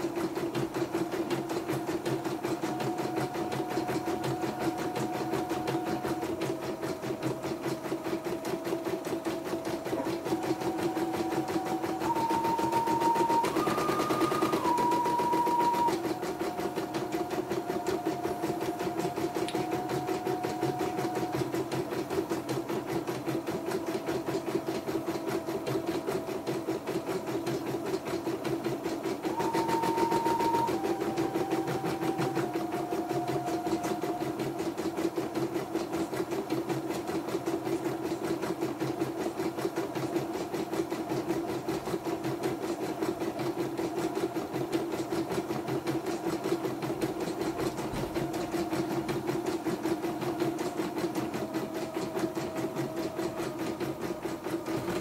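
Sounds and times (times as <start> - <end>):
embroidery machine stitching: 0.0 - 55.0
thin motor whine: 2.2 - 21.5, 29.3 - 34.8.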